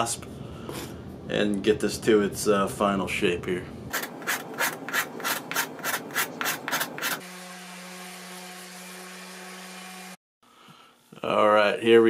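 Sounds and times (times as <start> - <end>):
hand rasp filing wood: 4.0 - 10.1
electric orbital sander: 6.9 - 10.2.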